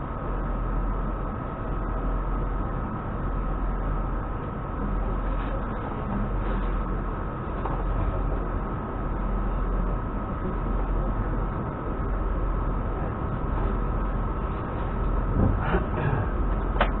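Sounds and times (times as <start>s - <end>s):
thin constant whine: 0.0s - 17.0s
train wheels rumbling on rails: 0.0s - 17.0s.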